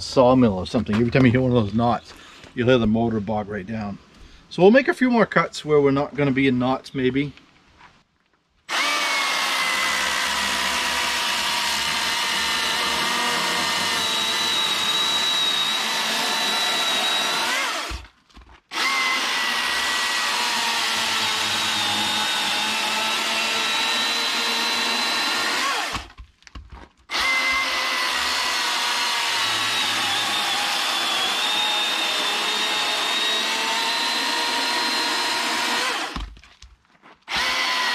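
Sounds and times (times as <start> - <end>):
electric chainsaw cutting wood: 8.7 - 18.1, 18.7 - 26.2, 27.1 - 36.4, 37.3 - 37.9.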